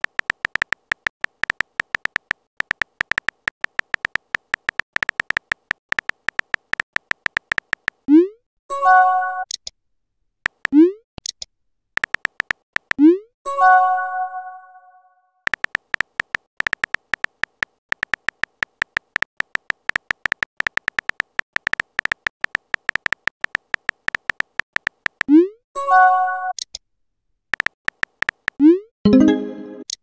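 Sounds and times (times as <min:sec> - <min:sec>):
soft keyboard typing clicks: 0:00.0 - 0:08.1, 0:10.5 - 0:13.1, 0:15.5 - 0:25.4, 0:27.5 - 0:30.0.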